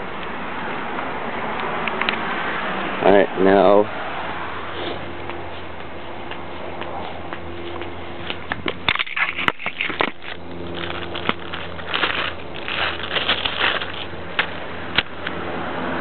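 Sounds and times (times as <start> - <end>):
crackly rustling: 7.3 - 15.4.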